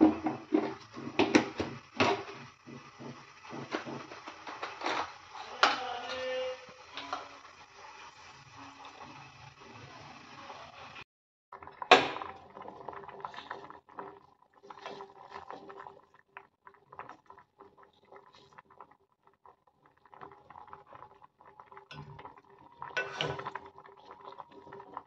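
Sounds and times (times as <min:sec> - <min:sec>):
lentils boiling and bubbling: 0:00.0 - 0:25.0
steel spoon scraping a pot: 0:22.9 - 0:23.6.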